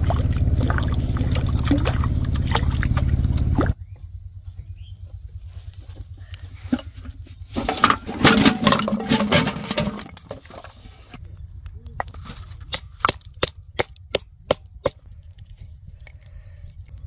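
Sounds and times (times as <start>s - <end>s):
plastic bottles clattering onto grass: 6.7s - 10.8s.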